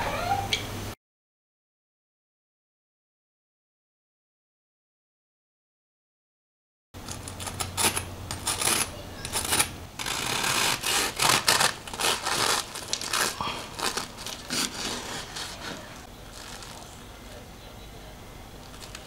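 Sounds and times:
bread knife sawing crunchy crust: 7.4 - 16.6.

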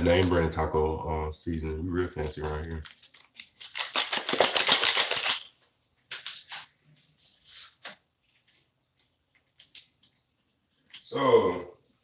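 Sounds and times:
packet tearing and crinkling: 2.8 - 5.5.

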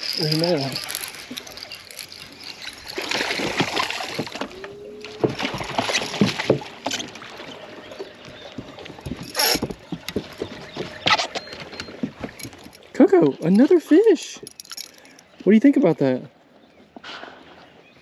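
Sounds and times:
fish splashing: 0.0 - 12.7
knocks and thumps on boat deck: 3.2 - 7.5, 8.3 - 12.8.

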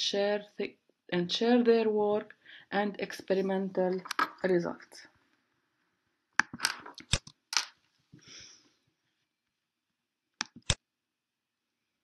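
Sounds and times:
mouse clicks: 10.4 - 10.8.

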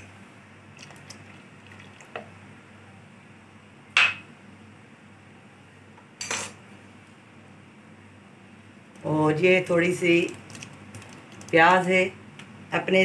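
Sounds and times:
faint steady background noise: 0.0 - 13.0
liquid pouring into a pot: 0.8 - 2.3, 10.3 - 11.6.

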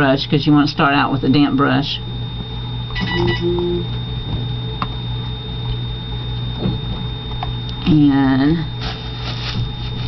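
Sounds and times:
low electrical hum: 0.0 - 10.0
thin high whine: 1.7 - 10.0
short beep: 3.0 - 3.9.

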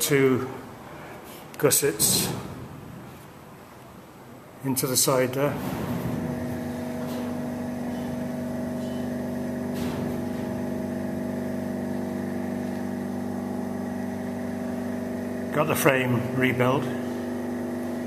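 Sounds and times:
machine humming: 5.4 - 18.0.

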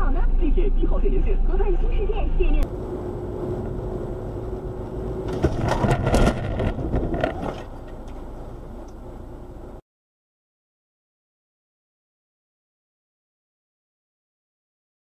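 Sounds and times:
car driving noise: 0.0 - 9.8
car crash bang: 5.2 - 8.0
metal crunching and scraping: 5.2 - 8.3.

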